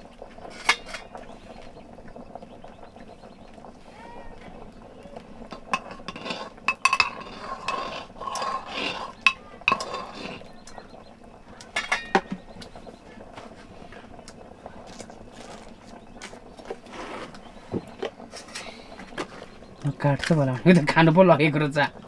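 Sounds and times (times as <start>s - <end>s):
metal pots and utensils clinking: 0.3s - 1.3s, 5.4s - 12.8s, 14.8s - 21.0s.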